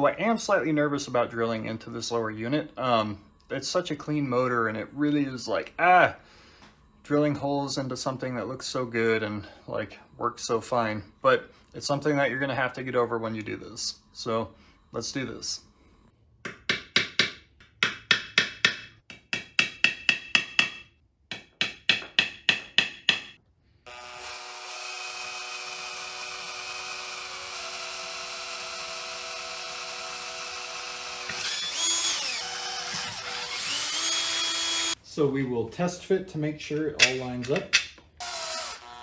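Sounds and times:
hammer tapping metal punch: 16.4s - 23.4s
cordless drill boring metal: 23.9s - 35.0s, 38.2s - 39.0s.

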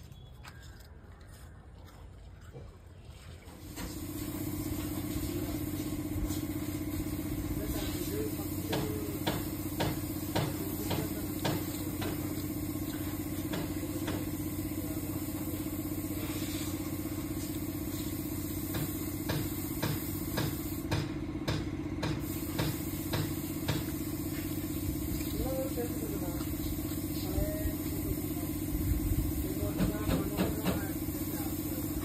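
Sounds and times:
dog crunching dry biscuits: 0.0s - 2.9s.

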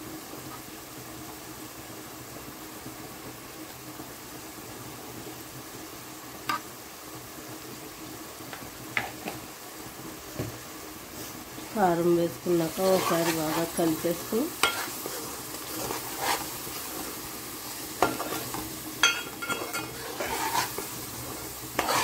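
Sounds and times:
masala sizzling in oil: 0.0s - 22.0s.

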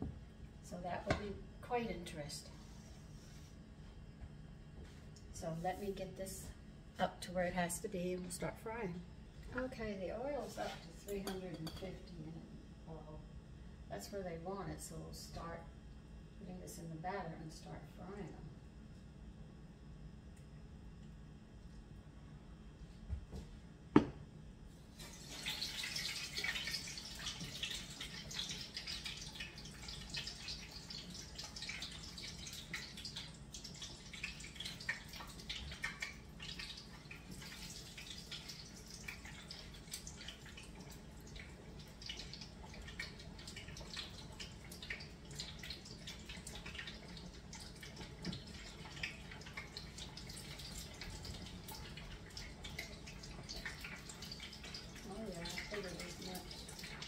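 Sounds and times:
chicken frying in oil: 24.8s - 57.0s.

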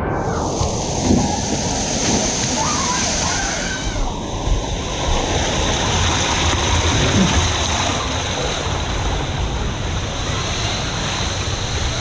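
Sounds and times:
water rushing and splashing: 0.0s - 12.0s
deep rumble: 4.0s - 10.4s.

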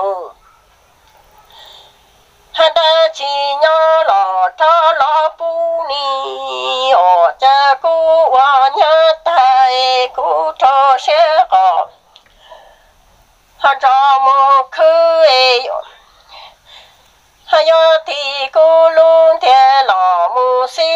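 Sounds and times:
person singing lament: 2.7s - 11.9s.

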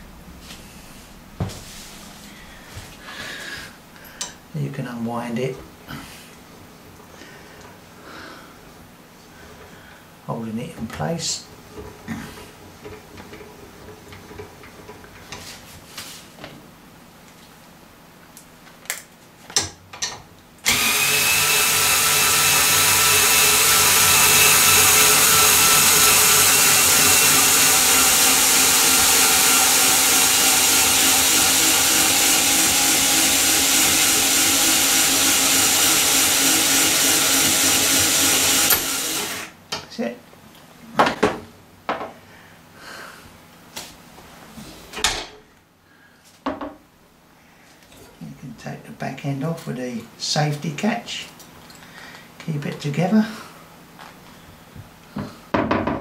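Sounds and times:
cordless screwdriver running: 20.7s - 39.5s.

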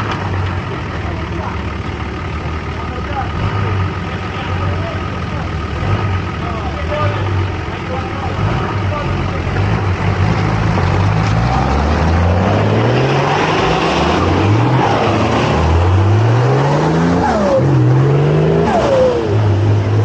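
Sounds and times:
engine revving hard: 3.2s - 4.1s, 5.7s - 7.3s, 8.0s - 20.0s.

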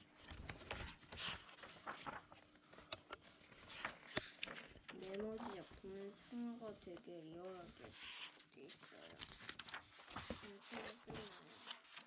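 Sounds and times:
book pages turning: 0.0s - 12.0s
sharp page flaps and taps: 0.2s - 5.6s.

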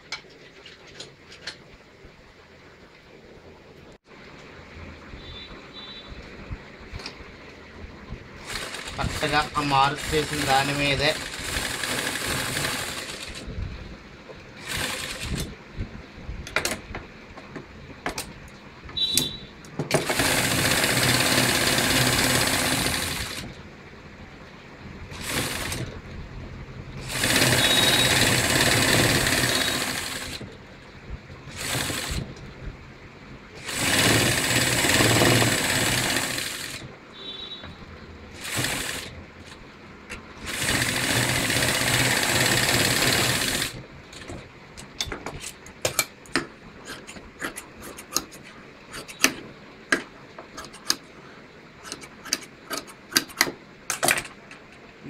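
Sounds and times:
sewing machine stitching: 8.4s - 13.5s, 14.6s - 15.5s, 19.9s - 23.6s, 25.1s - 25.9s, 27.0s - 30.5s, 31.5s - 32.3s, 33.6s - 36.9s, 38.3s - 39.2s, 40.4s - 43.8s.

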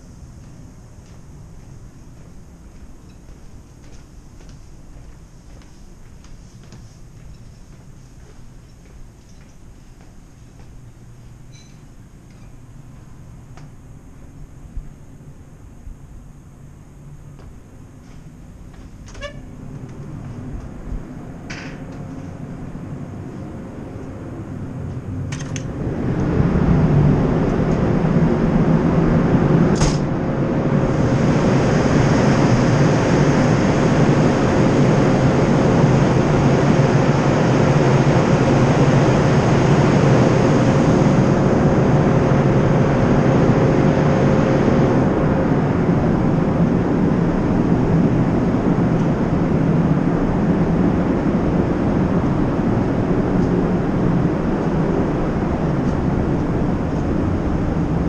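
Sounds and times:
ship machinery and ventilation noise: 0.0s - 58.0s
door opening: 19.0s - 20.0s
wind rushing: 22.3s - 58.0s.

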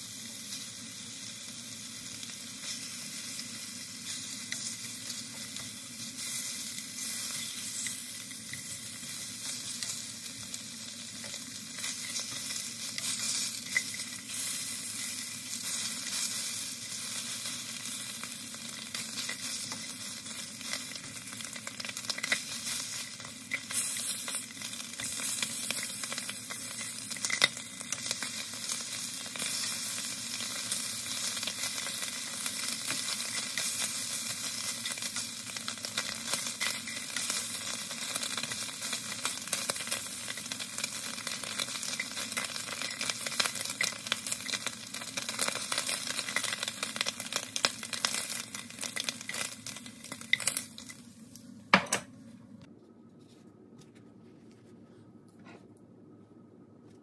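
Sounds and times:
meat sizzling in a frying pan: 0.0s - 51.2s.

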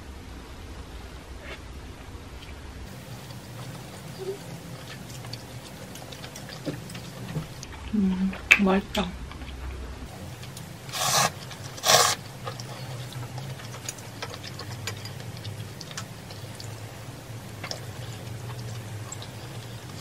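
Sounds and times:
chewing: 2.9s - 8.0s, 9.3s - 20.0s
person slurping noodles: 10.9s - 12.2s.

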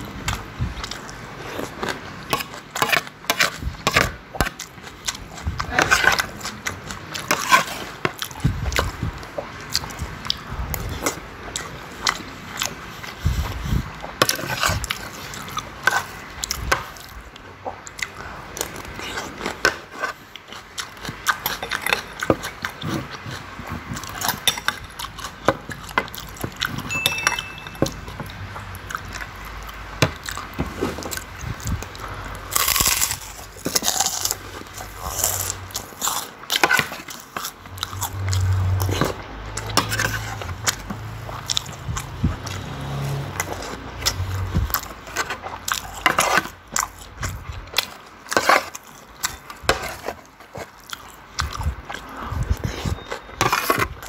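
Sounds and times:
chewing and mouth sounds: 0.0s - 54.0s
crunching: 17.8s - 54.0s
metal spoon clinking on plate: 26.8s - 28.2s.

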